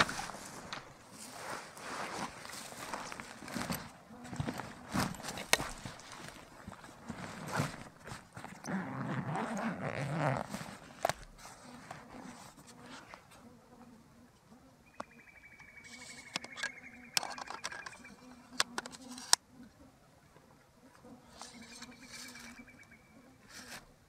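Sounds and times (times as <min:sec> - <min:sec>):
backpack rustling: 0:00.0 - 0:13.3
insect buzzing: 0:08.8 - 0:20.0, 0:20.7 - 0:24.0.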